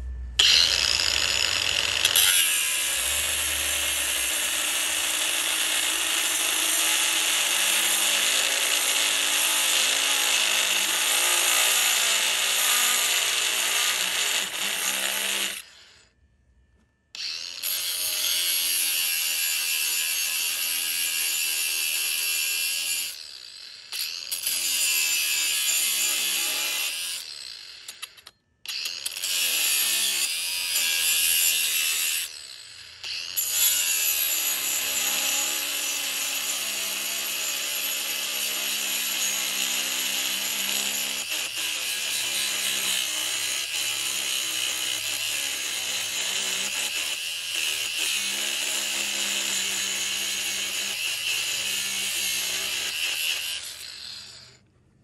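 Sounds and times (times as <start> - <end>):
power tool running under load: 0.4 - 15.7.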